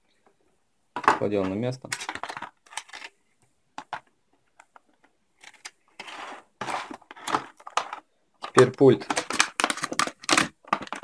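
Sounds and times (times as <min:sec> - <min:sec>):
plastic packaging rustling: 0:05.4 - 0:11.0.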